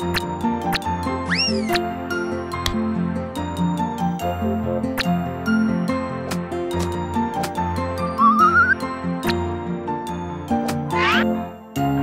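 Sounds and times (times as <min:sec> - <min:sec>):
upbeat cartoon music: 0:00.0 - 0:12.0
rising whistle sound effect: 0:08.2 - 0:08.8.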